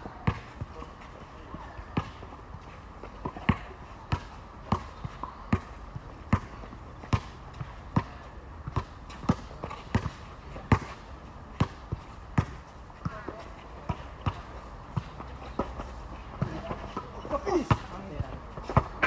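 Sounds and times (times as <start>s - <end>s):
basketball bouncing on hard court: 0.2s - 0.7s, 3.2s - 11.0s, 11.6s - 15.8s, 16.4s - 19.0s.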